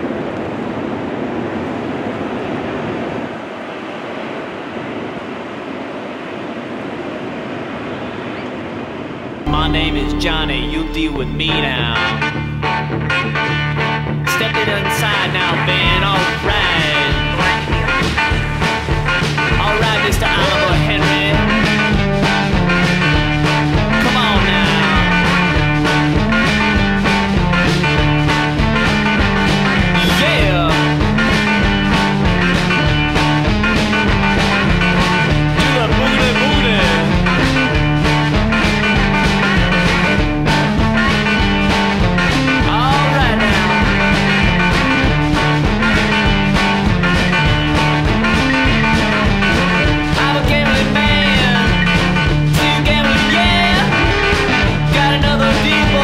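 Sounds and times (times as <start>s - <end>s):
music with drum beat and bass: 9.5s - 56.0s.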